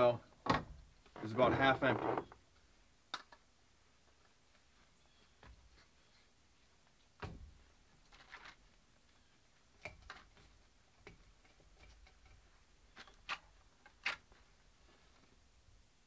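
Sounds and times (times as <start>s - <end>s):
sharp clicks and small knocks: 3.1s - 3.4s, 9.8s - 14.2s.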